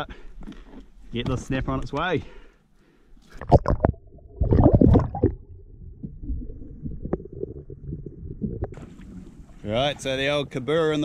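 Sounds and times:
underwater churning and bubbling: 0:03.3 - 0:10.0.

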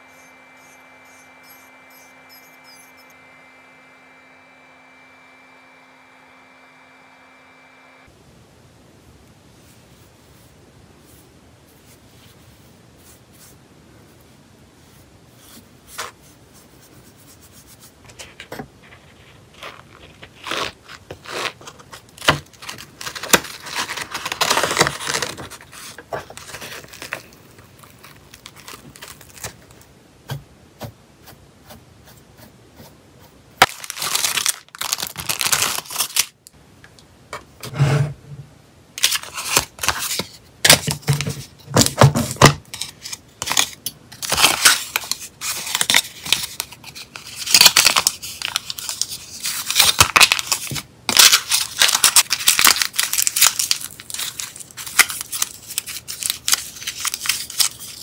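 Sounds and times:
paper rustling and crackling: 0:17.7 - 0:29.9, 0:33.6 - 0:36.4, 0:39.0 - 0:58.0
aluminium foil crinkling: 0:18.9 - 0:29.9, 0:33.6 - 0:36.5, 0:42.7 - 0:58.0.

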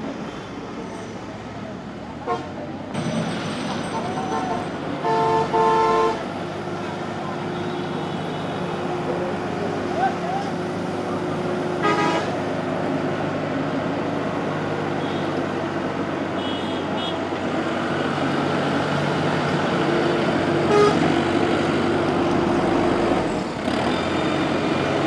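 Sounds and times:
diesel engine running: 0:00.0 - 0:25.0
vehicle horn toot: 0:04.3 - 0:06.2, 0:11.8 - 0:12.3, 0:16.4 - 0:17.2, 0:20.7 - 0:21.0.

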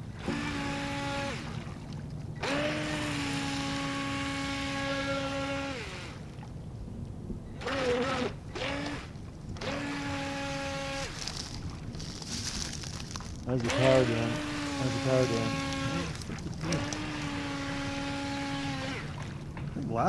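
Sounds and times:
electric motor whining: 0:00.0 - 0:01.5, 0:02.4 - 0:06.2, 0:07.6 - 0:11.4, 0:13.6 - 0:19.2.

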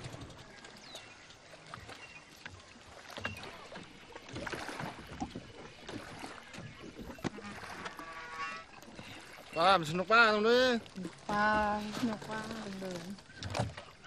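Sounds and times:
water sloshing around boat: 0:00.0 - 0:14.0
water splash: 0:00.0 - 0:14.0.

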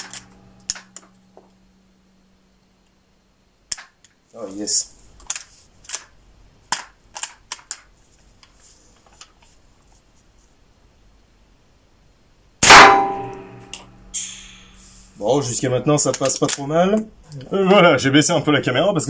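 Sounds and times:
loud gunshot with ringing echo: 0:12.6 - 0:13.6.

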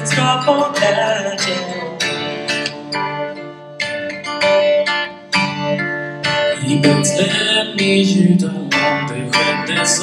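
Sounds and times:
acoustic guitar strumming chords: 0:00.0 - 0:10.0.

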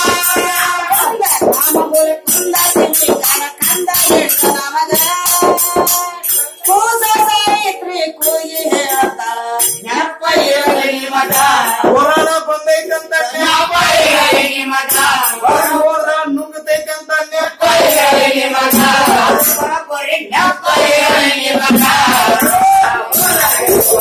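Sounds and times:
hand cymbals clinking: 0:00.0 - 0:07.5, 0:21.7 - 0:24.0
men's voices singing: 0:00.0 - 0:16.0, 0:16.7 - 0:24.0
frame drum beating: 0:17.7 - 0:19.7, 0:20.6 - 0:24.0.

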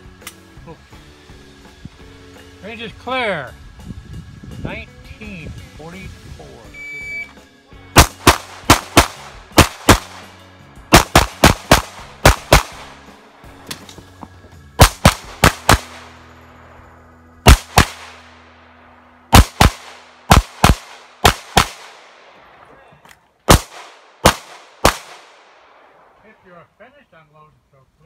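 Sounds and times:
pistol shots in rapid pairs: 0:07.9 - 0:13.1, 0:14.8 - 0:16.3, 0:17.4 - 0:18.5, 0:19.3 - 0:22.3, 0:23.5 - 0:26.1.

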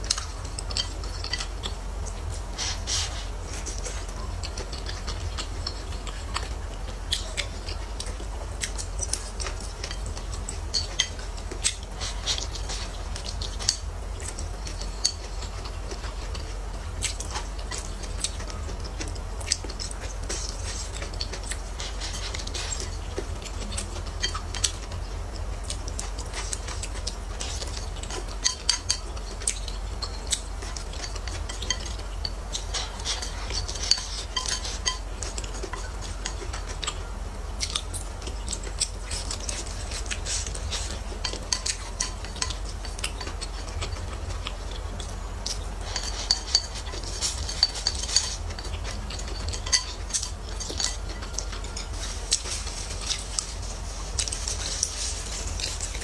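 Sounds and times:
chewing: 0:00.0 - 0:56.0
chopsticks clicking on a plate: 0:25.6 - 0:37.0.

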